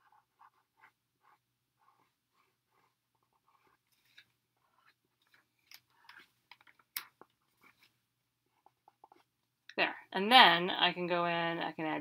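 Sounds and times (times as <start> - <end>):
pencil scratching on paper: 0.0 - 6.4, 7.4 - 9.4.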